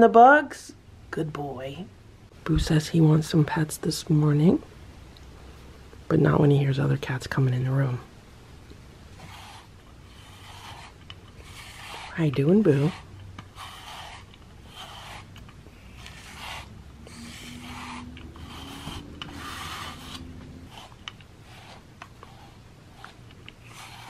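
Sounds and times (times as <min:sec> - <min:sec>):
brush rubbing through cat fur: 0:09.2 - 0:24.0.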